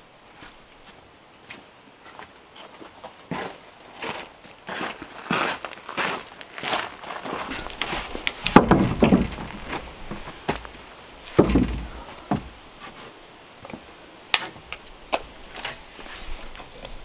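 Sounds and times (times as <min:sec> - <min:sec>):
wooden slab thumping on deck: 0:08.5 - 0:10.7, 0:11.3 - 0:12.6.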